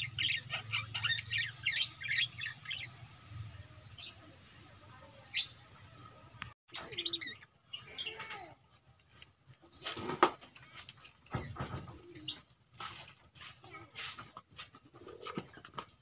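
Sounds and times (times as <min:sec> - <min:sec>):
budgerigars chirping and chattering: 0:00.0 - 0:04.3.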